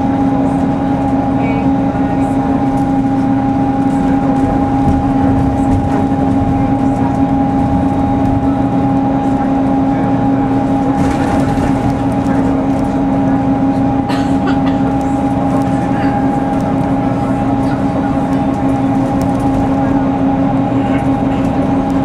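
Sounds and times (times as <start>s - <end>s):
bus engine and road rumble: 0.0s - 22.0s.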